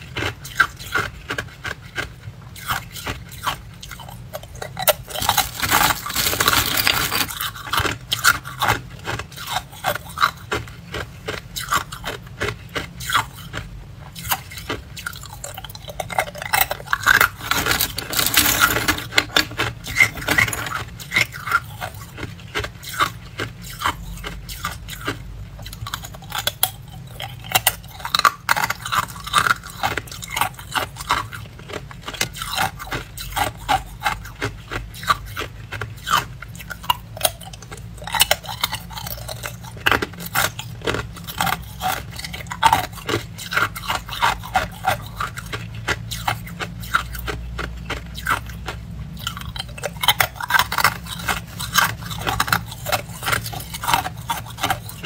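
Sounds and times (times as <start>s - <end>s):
ice cubes being chewed: 0.0s - 55.0s
plastic bag of ice rustling: 4.8s - 8.3s, 16.5s - 21.0s.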